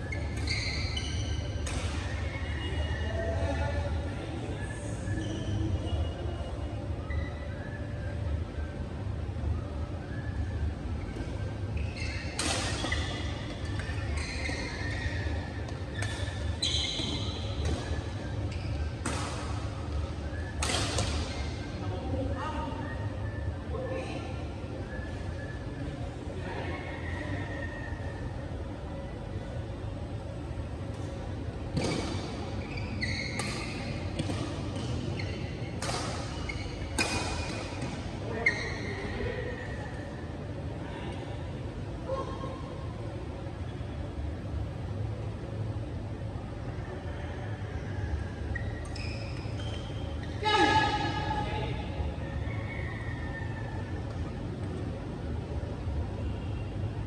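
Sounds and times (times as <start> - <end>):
shoes squeaking on court: 0.0 - 3.7, 4.9 - 6.2, 11.0 - 21.8, 30.9 - 40.1, 48.4 - 51.1
rackets hitting shuttlecock: 1.6 - 2.1, 12.3 - 14.0, 19.0 - 19.8, 20.4 - 21.6, 33.4 - 35.1, 35.7 - 38.1
rackets striking shuttlecock: 12.3 - 14.0, 19.0 - 19.7, 20.5 - 21.6.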